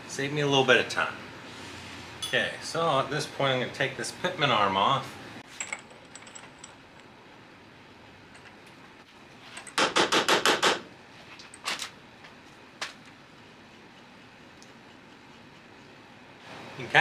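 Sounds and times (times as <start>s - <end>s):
metal clinks: 5.6s - 7.1s
impact wrench hammering: 9.7s - 10.8s.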